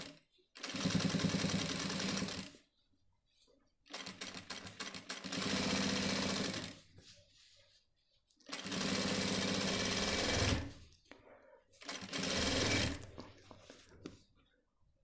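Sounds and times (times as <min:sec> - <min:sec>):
sewing machine stitching: 0:00.0 - 0:02.5, 0:03.9 - 0:06.8, 0:08.5 - 0:10.8, 0:11.8 - 0:13.2.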